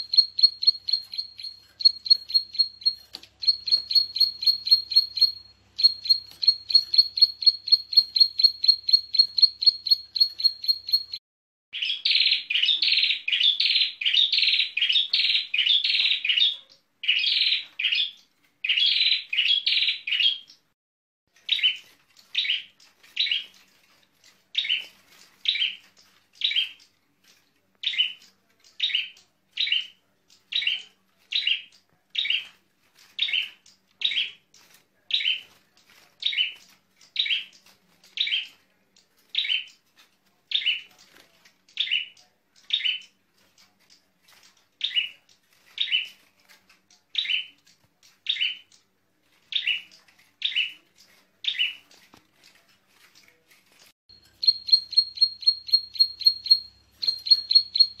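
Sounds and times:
small songbird singing: 0.0 - 11.2, 11.8 - 20.7, 24.6 - 27.0, 27.8 - 32.5, 36.2 - 38.6, 41.6 - 43.2, 44.7 - 46.2, 47.1 - 48.8, 49.5 - 51.9, 54.1 - 58.0.

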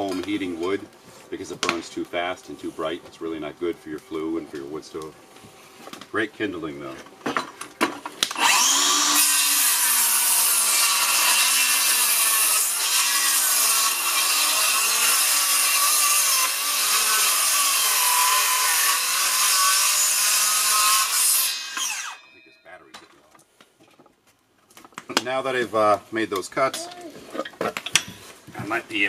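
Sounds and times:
circular saw cutting wood: 8.3 - 22.3.

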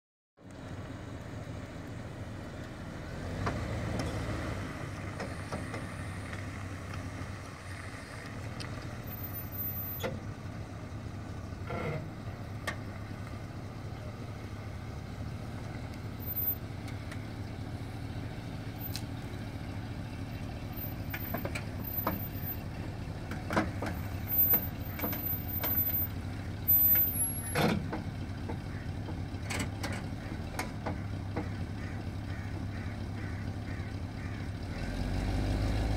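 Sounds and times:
truck engine running: 0.4 - 35.9
sharp clicks and knocks: 23.2 - 26.0, 27.5 - 31.6.

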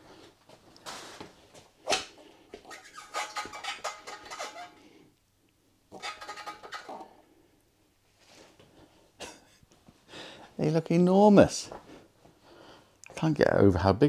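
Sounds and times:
rubber tyres squeaking and rubbing: 0.9 - 4.9, 5.9 - 7.2.

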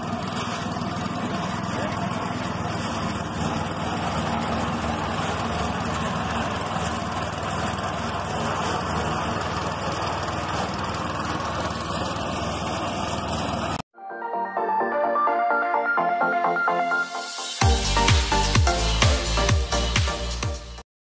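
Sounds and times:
small petrol engine running: 0.0 - 13.8.

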